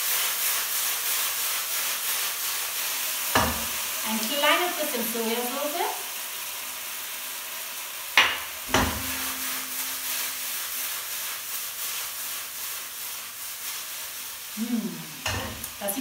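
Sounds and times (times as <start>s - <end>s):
pasta sizzling in a wok: 0.0s - 16.0s
wok clanking on burner grate: 3.3s - 3.9s, 8.2s - 10.4s, 15.2s - 15.8s.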